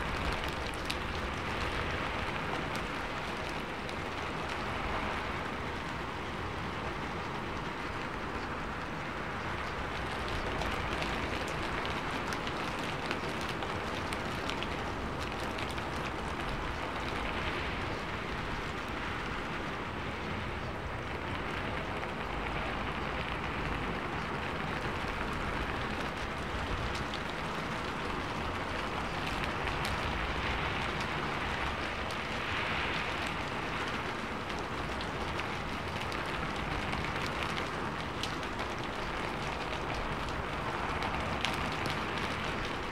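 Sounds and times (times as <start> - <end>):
steady rain: 0.0 - 42.9.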